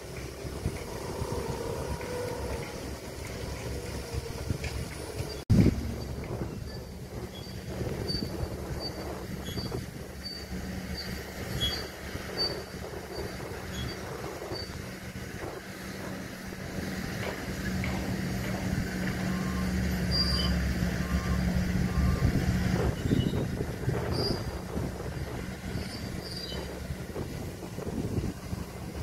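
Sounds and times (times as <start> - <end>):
diesel machinery running: 0.0 - 29.0
warning alarm double beeps: 19.2 - 23.4.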